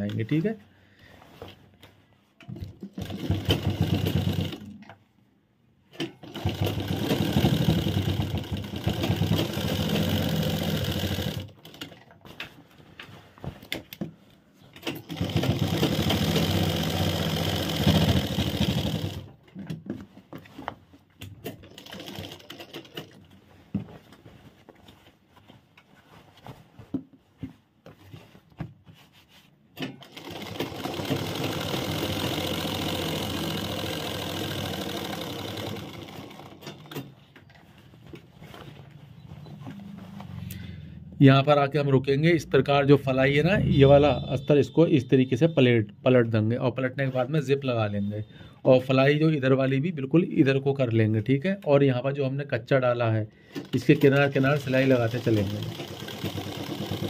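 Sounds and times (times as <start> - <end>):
sewing machine stitching: 2.5 - 4.9, 6.0 - 12.1, 14.8 - 19.4, 21.4 - 23.2, 29.8 - 37.2, 53.5 - 57.0
fabric handling: 12.1 - 14.7, 21.8 - 30.6, 33.3 - 40.8.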